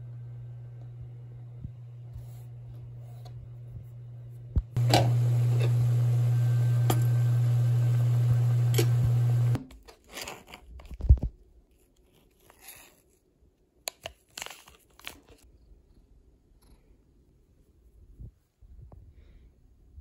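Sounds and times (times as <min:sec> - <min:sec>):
low electrical hum: 0:00.0 - 0:09.7
packet rustling: 0:14.0 - 0:15.4.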